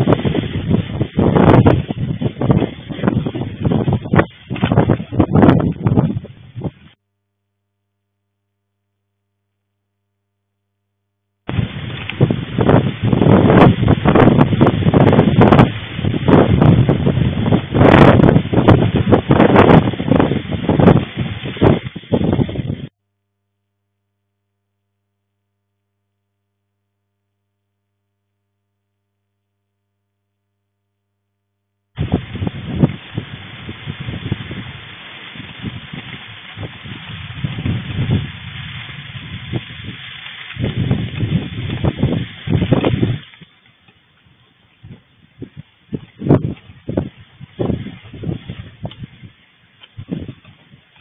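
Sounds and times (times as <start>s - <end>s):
wind and heavy rain on microphone: 0.0s - 7.0s, 11.5s - 22.9s, 32.0s - 51.0s.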